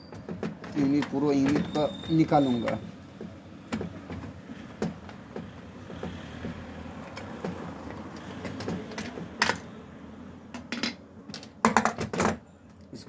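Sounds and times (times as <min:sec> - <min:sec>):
plastic parts clicking and clattering: 0:00.1 - 0:01.9.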